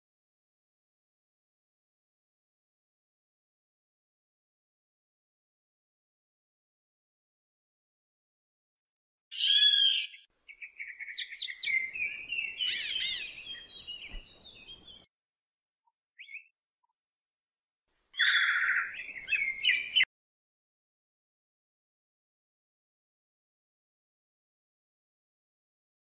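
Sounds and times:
songbird chirping and warbling: 9.3s - 15.1s, 16.1s - 17.0s, 18.2s - 20.1s.

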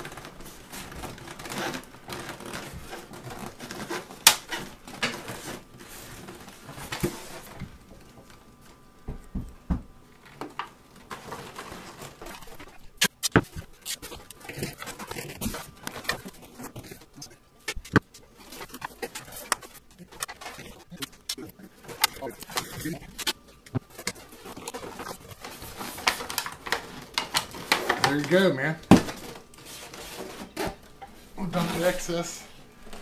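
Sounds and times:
styrofoam squeaking and crunching: 0.0s - 6.6s, 11.2s - 32.4s
can clicking and crinkling: 12.3s - 28.4s.

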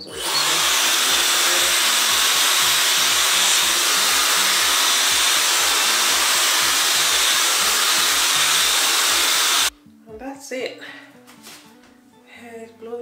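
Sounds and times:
hair dryer blowing: 0.0s - 9.7s.

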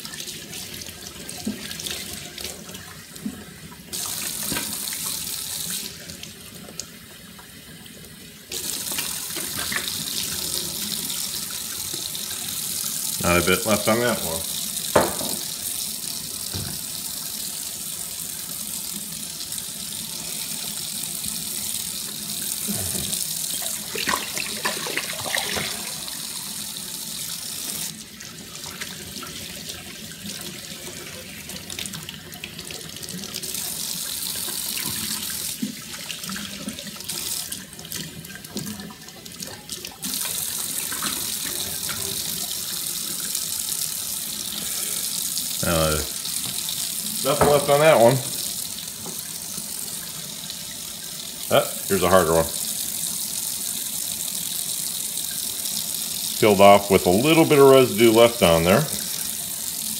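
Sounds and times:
faucet running into steel sink: 0.0s - 59.9s
glass bottle knocks: 15.0s - 15.4s.

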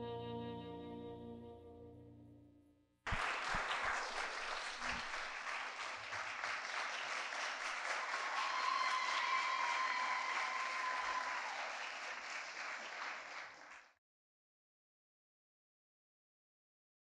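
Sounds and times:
audience applause: 3.1s - 14.0s.

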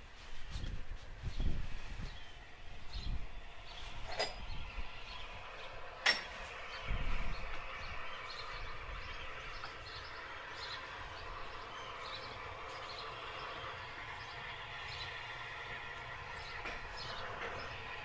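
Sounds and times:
distant steam locomotive working: 0.0s - 18.0s
low rumble: 1.5s - 18.0s.

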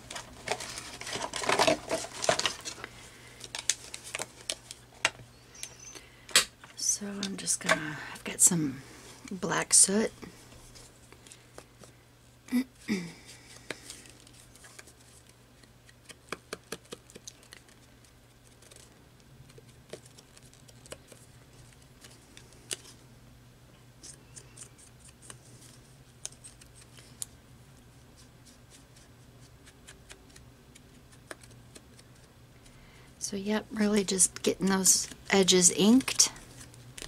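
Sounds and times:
paper crinkling: 0.0s - 5.2s, 13.4s - 23.0s, 24.0s - 27.3s, 28.2s - 32.7s, 34.8s - 37.0s.

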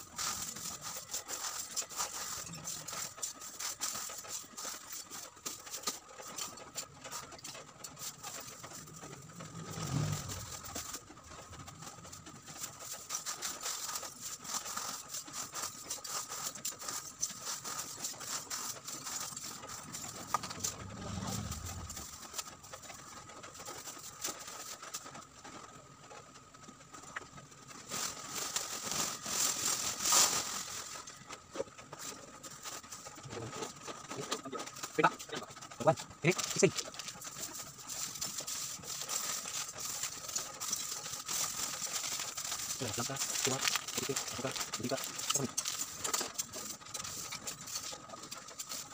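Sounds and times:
plastic bag rustling: 0.0s - 25.3s, 27.2s - 48.9s
low rumble: 20.4s - 22.2s
charcoal pieces clinking: 39.0s - 47.8s.

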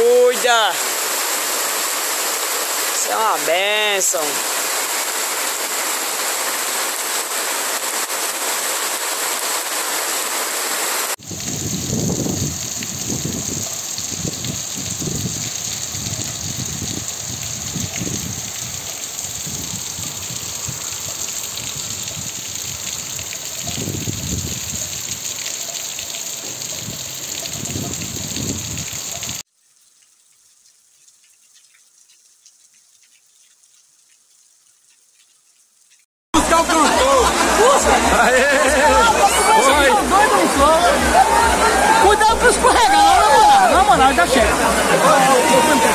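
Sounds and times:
heavy rain pouring: 0.0s - 29.5s, 36.4s - 45.9s
low wind gusts: 11.2s - 25.4s, 26.4s - 29.4s.

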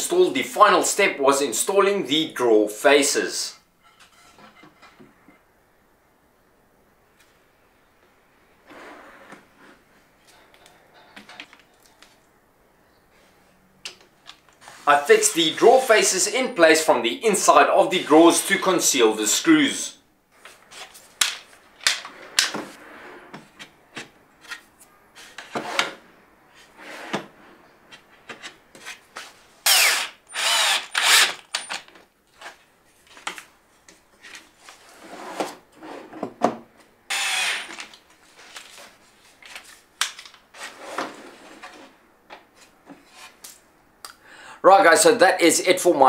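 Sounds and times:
cordless drill driving screws: 29.7s - 31.8s, 37.1s - 37.9s.

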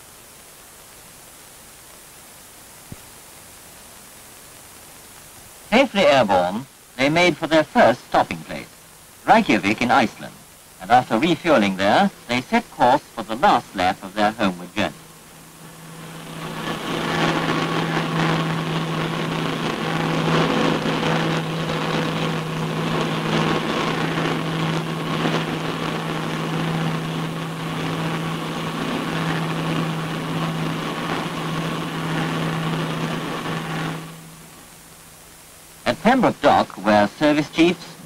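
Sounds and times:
propeller aircraft engines droning: 9.3s - 34.6s.

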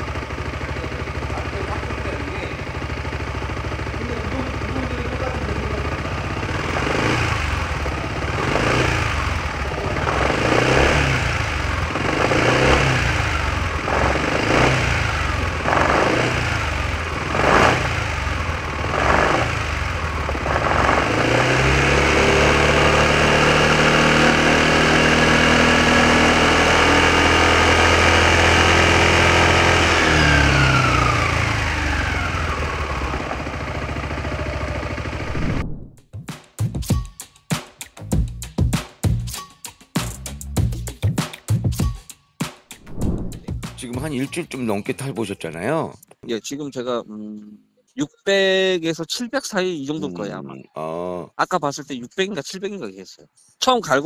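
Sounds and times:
scooter engine revving: 0.0s - 35.6s.

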